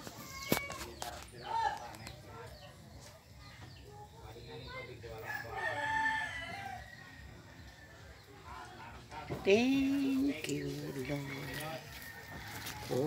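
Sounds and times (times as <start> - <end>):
rooster crowing: 5.2 - 7.4, 11.0 - 13.0.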